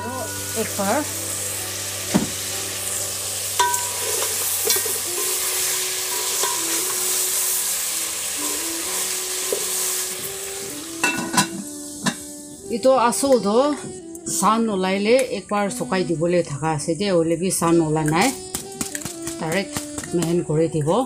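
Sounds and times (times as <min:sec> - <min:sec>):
pork sizzling in a pot: 0:00.0 - 0:13.7
metal lid clattering onto pot: 0:11.0 - 0:12.2.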